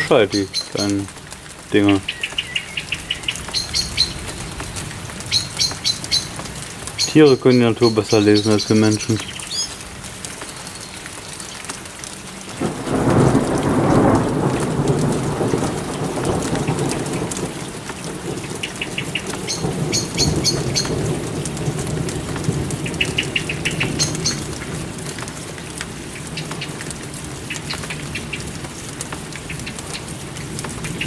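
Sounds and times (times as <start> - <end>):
small birds chirping: 0.0 - 1.1, 1.7 - 4.7, 5.3 - 9.8, 18.6 - 21.0, 22.8 - 24.5
steady rain: 0.0 - 31.0
thunder rumbling: 12.6 - 25.1.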